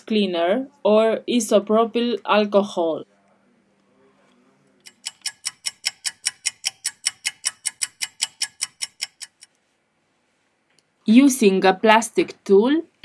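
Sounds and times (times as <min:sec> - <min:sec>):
clock ticking: 0:04.8 - 0:09.5.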